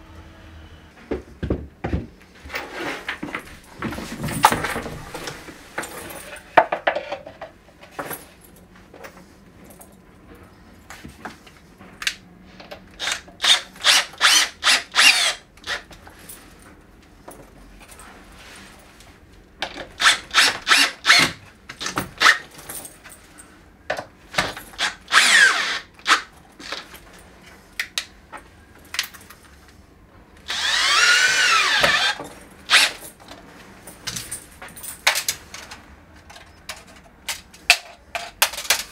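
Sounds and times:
cordless drill whirring into wood: 13.0 - 15.8, 24.8 - 26.3, 30.5 - 33.0.

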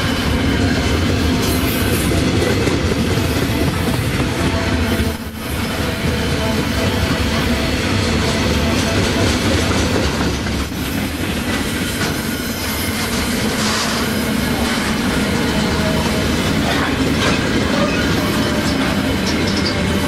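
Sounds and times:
steel train wheels rumbling: 0.0 - 20.0
wheels clacking over rail joints: 7.0 - 20.0.

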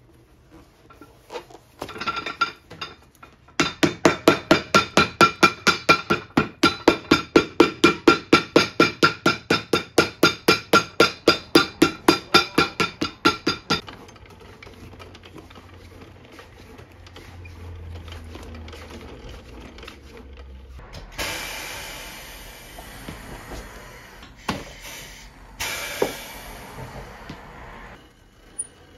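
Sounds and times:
hammer striking leather sole: 3.6 - 13.8.

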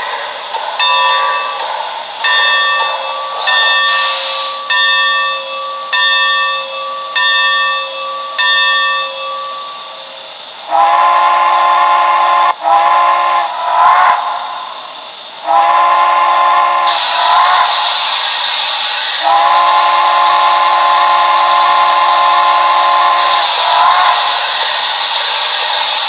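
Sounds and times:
steam hiss: 0.0 - 26.0
locomotive bell ringing: 0.8 - 10.1
steam whistle blasts: 2.2 - 9.9, 10.7 - 14.4, 15.4 - 26.0.

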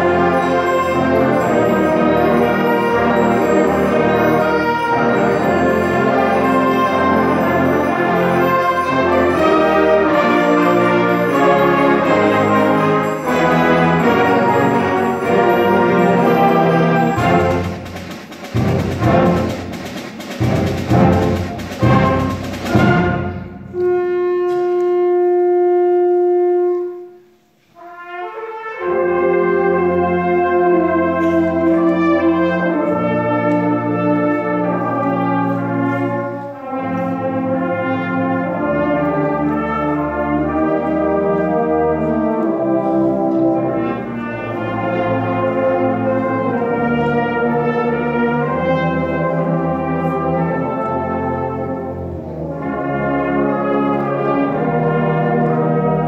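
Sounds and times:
concert band playing: 0.0 - 26.9.

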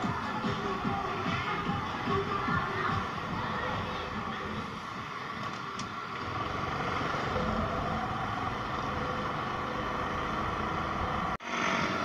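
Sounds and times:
road noise: 0.0 - 12.0
motorcycle engine: 6.0 - 12.0.

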